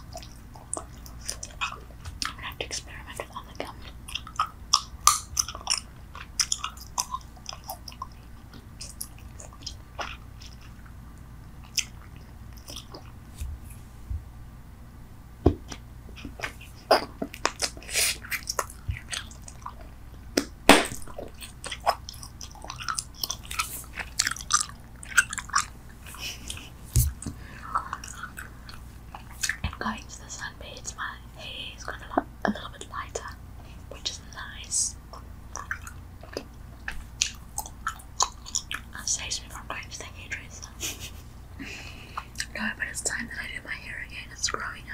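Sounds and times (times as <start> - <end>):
gum chewing mouth smacks: 0.0 - 13.5, 15.6 - 29.8, 35.1 - 39.0, 42.2 - 42.6.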